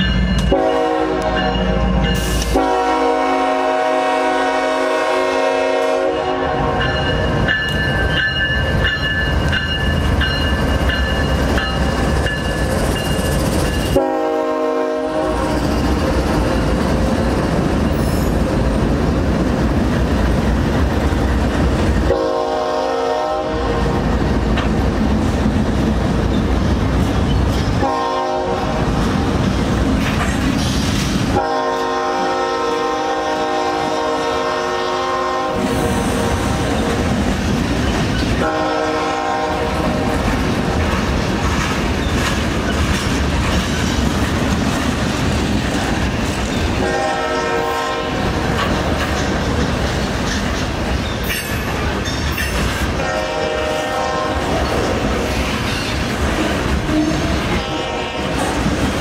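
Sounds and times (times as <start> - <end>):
freight train rumbling past: 0.0 - 59.0
train wheels on rails: 0.0 - 59.0
locomotive horn blasts: 0.4 - 7.0, 13.9 - 15.4, 22.1 - 24.0, 27.8 - 28.9, 31.3 - 36.4, 38.4 - 40.1, 46.8 - 48.3, 52.9 - 54.7, 56.9 - 58.5.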